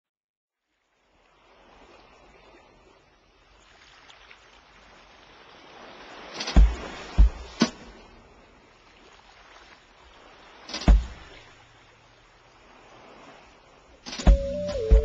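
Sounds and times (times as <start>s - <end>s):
loud deep thump: 10.8s - 11.3s, 14.2s - 15.0s
music: 14.2s - 15.0s.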